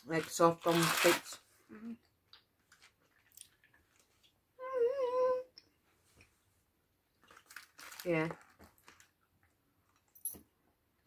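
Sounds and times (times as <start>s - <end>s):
person humming: 4.6s - 5.6s.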